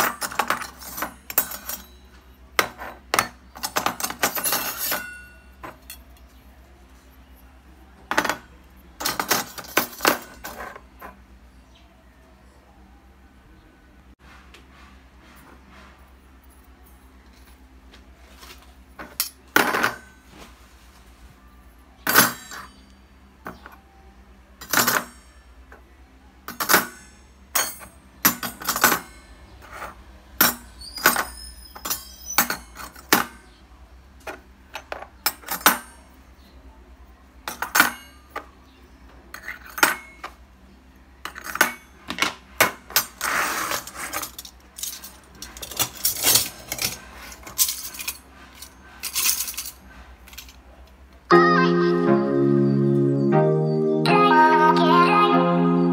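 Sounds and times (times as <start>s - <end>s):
metal rings clinking: 0.0s - 6.5s, 22.1s - 22.9s, 26.5s - 33.4s, 42.9s - 50.6s.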